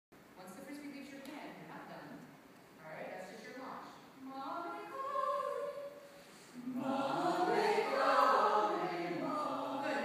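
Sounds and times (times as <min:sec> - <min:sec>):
choir singing: 0:06.6 - 0:10.0.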